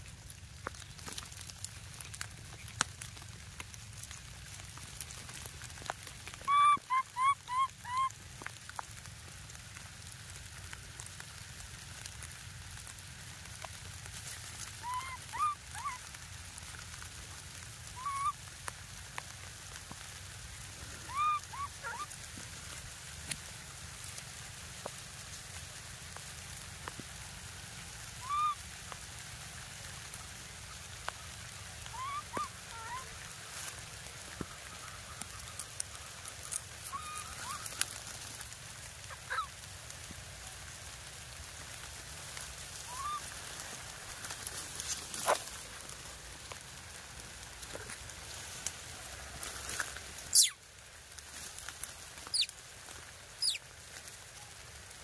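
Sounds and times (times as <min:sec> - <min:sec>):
baby monkey crying: 0:06.4 - 0:08.1, 0:14.8 - 0:16.0, 0:18.0 - 0:18.4, 0:21.1 - 0:22.1, 0:28.2 - 0:28.6, 0:31.9 - 0:33.1, 0:39.1 - 0:39.5, 0:42.9 - 0:43.2, 0:50.3 - 0:50.6, 0:53.4 - 0:53.6.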